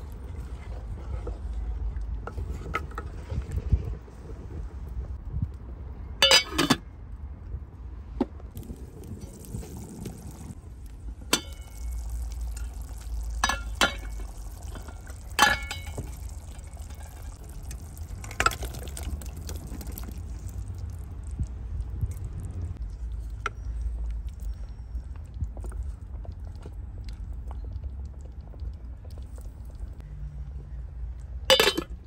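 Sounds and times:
curry simmering over fire: 0:00.0 - 0:07.6, 0:08.4 - 0:32.0
metal pot lid clatter: 0:06.2 - 0:06.8, 0:31.5 - 0:31.9
metal spoon clinking on pot: 0:06.2 - 0:06.8, 0:31.5 - 0:32.0.

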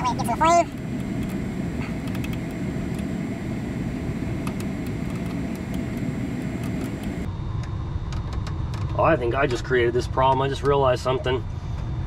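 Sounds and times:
gas furnace rumbling and whirring: 0:00.0 - 0:12.0.

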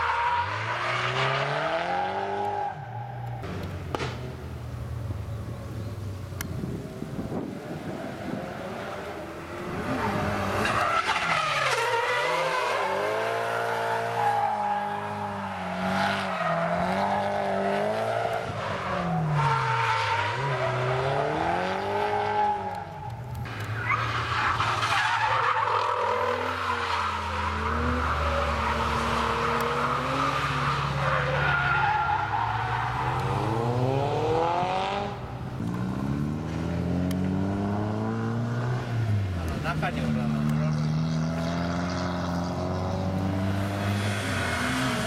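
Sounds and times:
car engines revving: 0:00.0 - 0:45.0.

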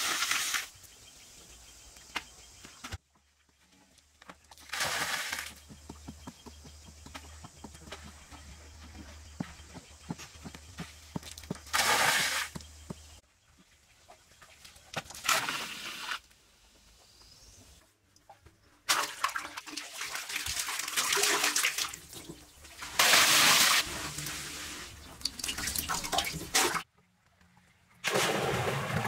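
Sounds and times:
water pouring and splashing: 0:00.0 - 0:00.8, 0:04.5 - 0:05.7, 0:11.4 - 0:12.6, 0:14.4 - 0:16.2, 0:18.9 - 0:26.9, 0:28.0 - 0:29.0
water sloshing: 0:18.9 - 0:26.8.

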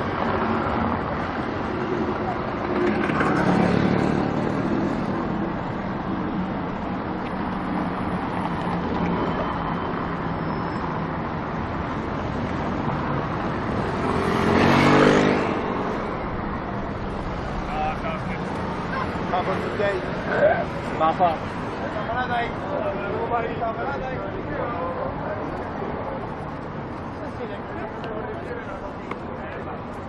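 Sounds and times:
city road traffic: 0:00.0 - 0:30.0
vehicle passing close: 0:13.3 - 0:20.0.

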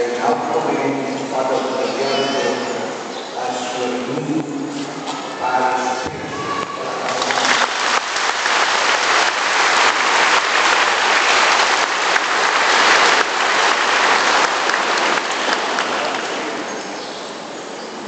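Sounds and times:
congregation applauding: 0:06.7 - 0:16.9.

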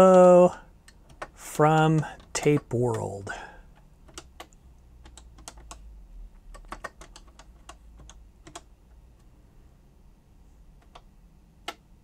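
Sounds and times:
keyboard key clicks: 0:00.0 - 0:03.1, 0:06.4 - 0:08.7.

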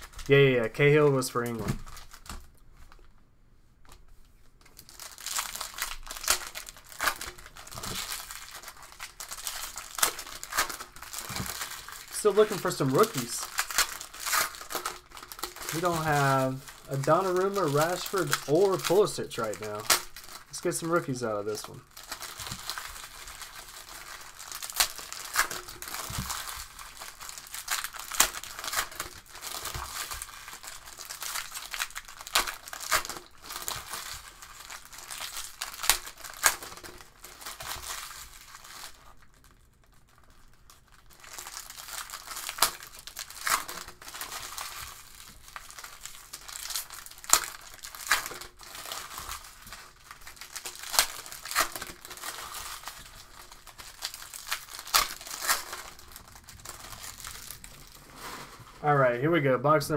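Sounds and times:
wrappers tearing and crinkling: 0:00.0 - 0:03.1, 0:04.6 - 0:59.0
cards clicking and rustling: 0:09.5 - 0:20.1.

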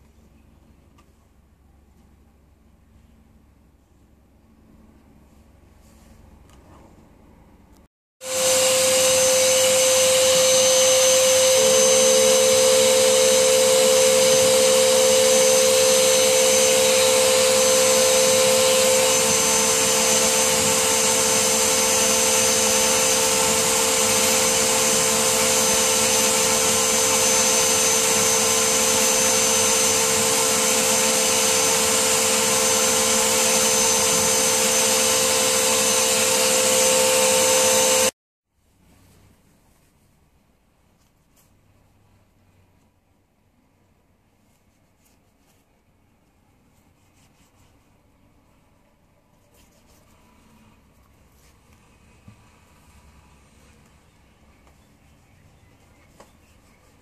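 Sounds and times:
vacuum cleaner running: 0:08.2 - 0:38.2.

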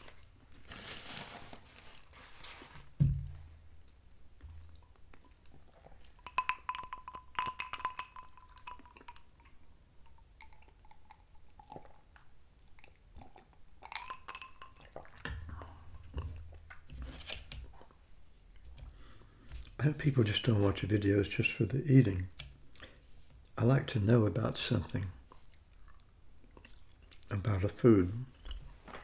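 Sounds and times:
chewing with wet mouth clicks: 0:04.7 - 0:16.8, 0:25.3 - 0:27.3
glass clinking: 0:06.2 - 0:09.1.

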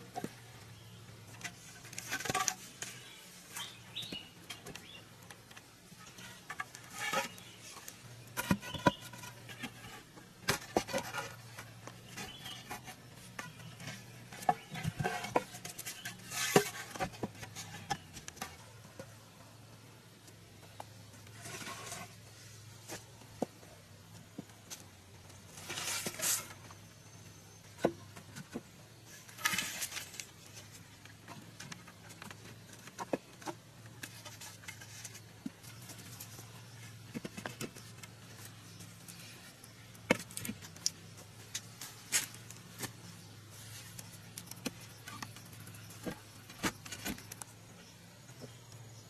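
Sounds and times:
rustling scrapes: 0:06.0 - 0:18.7, 0:21.3 - 0:23.1, 0:25.5 - 0:26.8, 0:29.1 - 0:31.6.

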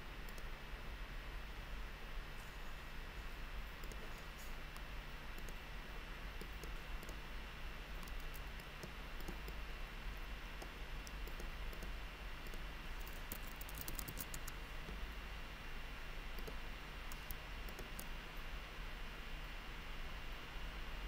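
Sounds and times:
steady low hum: 0:00.0 - 0:21.0
faint mouse clicks: 0:00.3 - 0:00.5, 0:03.8 - 0:05.6, 0:06.4 - 0:07.2, 0:08.0 - 0:09.6, 0:10.6 - 0:15.0, 0:16.4 - 0:18.1
keyboard keystrokes: 0:03.8 - 0:04.1, 0:05.4 - 0:05.6, 0:08.0 - 0:09.6, 0:10.6 - 0:14.6, 0:16.4 - 0:18.1.

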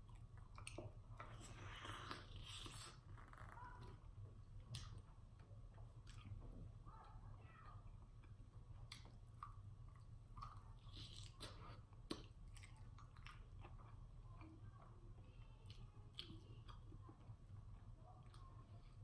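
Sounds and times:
chewing chicken wing: 0:04.5 - 0:19.0.

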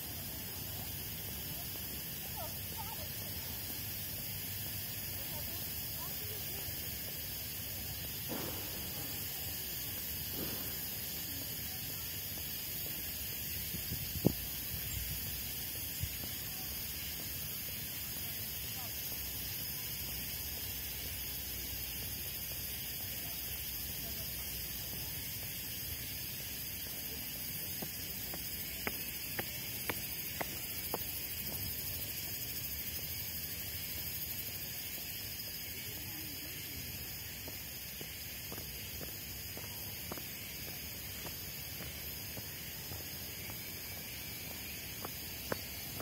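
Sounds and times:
high background hiss: 0:00.0 - 0:46.0
footsteps on stone: 0:05.3 - 0:18.4, 0:24.8 - 0:32.5, 0:36.6 - 0:46.0.

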